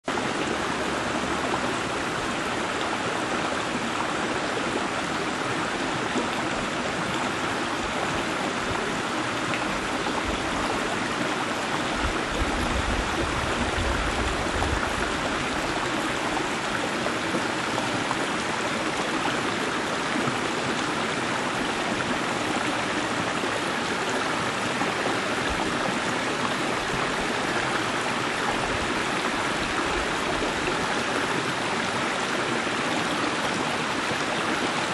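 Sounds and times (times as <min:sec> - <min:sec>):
creek water flowing over rocks: 0:00.0 - 0:34.9.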